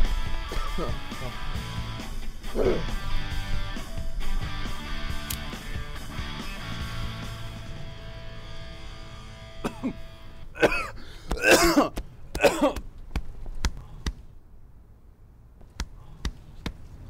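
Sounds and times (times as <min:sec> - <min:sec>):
background music: 0:00.0 - 0:10.8
person coughing: 0:00.5 - 0:01.3, 0:02.5 - 0:02.9, 0:09.6 - 0:12.8.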